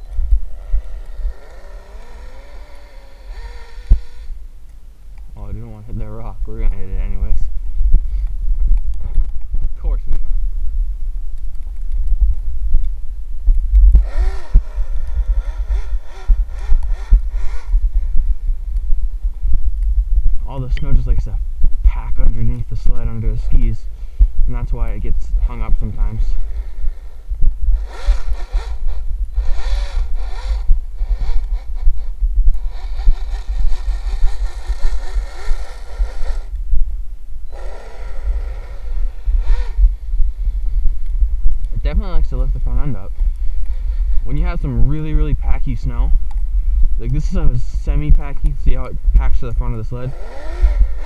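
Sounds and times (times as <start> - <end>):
electric motor whining: 0.0 - 4.6, 13.9 - 18.9, 26.2 - 36.6, 37.4 - 40.8, 50.1 - 51.0
steady low rumble: 0.0 - 51.0.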